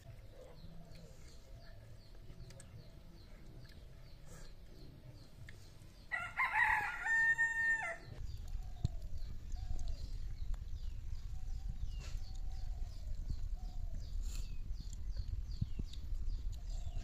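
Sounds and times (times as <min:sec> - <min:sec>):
rooster crowing: 0:06.1 - 0:08.2.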